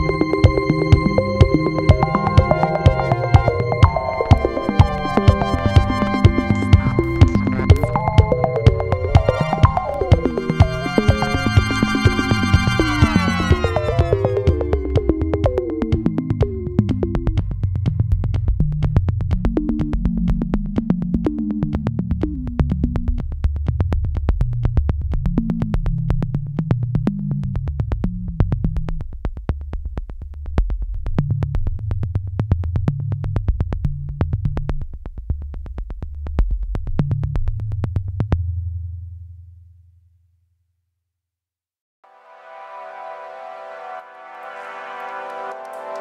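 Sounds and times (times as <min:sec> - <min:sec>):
keyboard phrases: 0:00.0 - 0:17.1
drum machine beat: 0:00.0 - 0:26.8
low synth bass line: 0:00.0 - 0:29.0.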